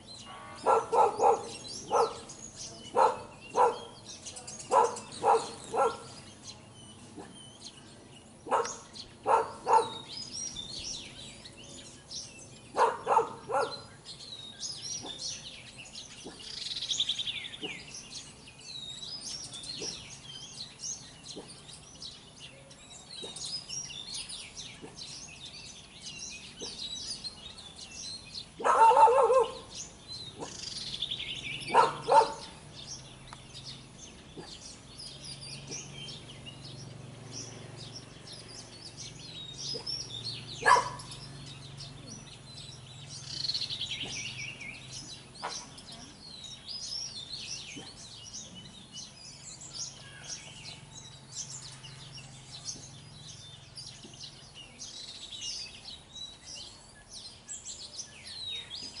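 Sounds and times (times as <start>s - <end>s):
small birds chirping: 0.0s - 59.0s
dog barking: 0.6s - 2.3s, 2.9s - 4.0s, 4.7s - 6.2s, 8.4s - 10.1s, 12.8s - 13.9s, 19.8s - 20.0s, 28.6s - 29.7s, 30.4s - 30.6s, 31.7s - 32.6s, 40.6s - 41.1s, 45.4s - 45.7s.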